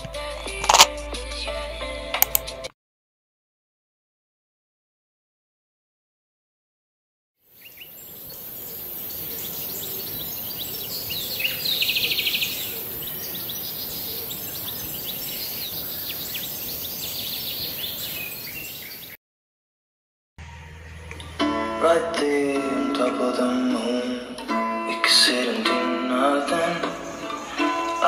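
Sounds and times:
bird trill: 0:07.5 - 0:19.2
birds chirping: 0:07.5 - 0:19.2, 0:26.6 - 0:28.0
steady background hiss: 0:07.6 - 0:19.0.

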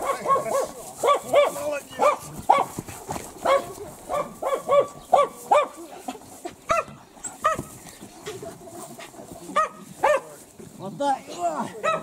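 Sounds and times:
large dog barking: 0:00.0 - 0:02.8, 0:03.4 - 0:07.8, 0:09.4 - 0:10.4, 0:11.7 - 0:12.0.

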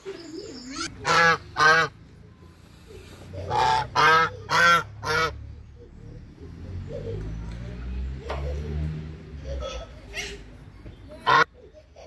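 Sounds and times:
geese honking: 0:01.0 - 0:02.0, 0:03.5 - 0:05.4.

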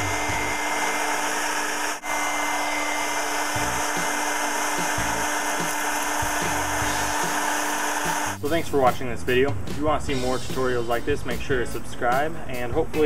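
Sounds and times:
hair dryer motor humming: 0:00.0 - 0:08.4.

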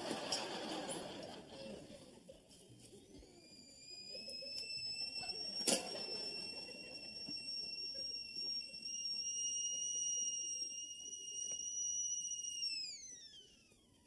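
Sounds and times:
kettle whistling: 0:03.1 - 0:14.0.

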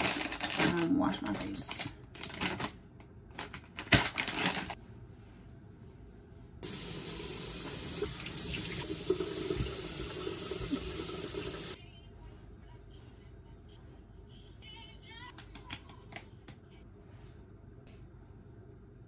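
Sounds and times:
faucet running: 0:06.6 - 0:11.8.

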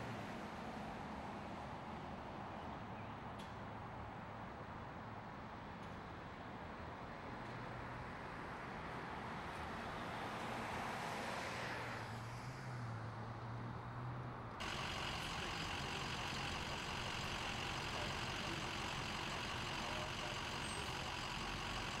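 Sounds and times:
low engine hum: 0:14.6 - 0:22.0
trucks idling: 0:14.6 - 0:22.0.

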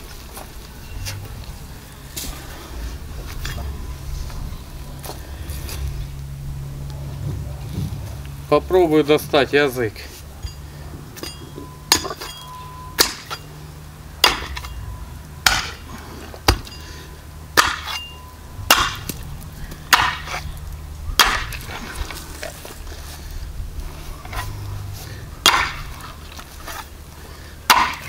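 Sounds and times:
axe chopping on wooden stump: 0:11.9 - 0:12.4, 0:13.0 - 0:13.4, 0:14.2 - 0:14.7, 0:15.4 - 0:15.8, 0:16.4 - 0:16.8, 0:17.6 - 0:18.1, 0:18.7 - 0:19.2, 0:19.9 - 0:20.4, 0:21.2 - 0:21.7, 0:25.4 - 0:26.0, 0:27.7 - 0:28.0.

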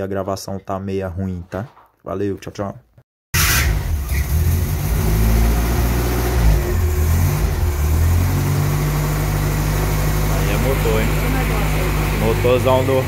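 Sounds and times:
car engine revving and idling: 0:03.6 - 0:13.0.

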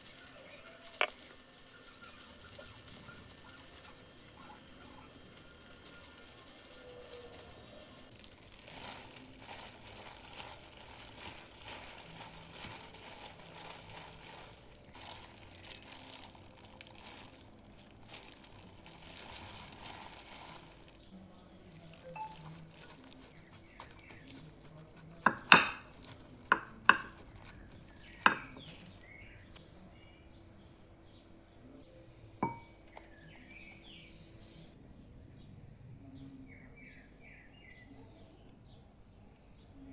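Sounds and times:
crumbs rustling: 0:00.0 - 0:29.6
plastic glove crinkling: 0:00.0 - 0:29.6.

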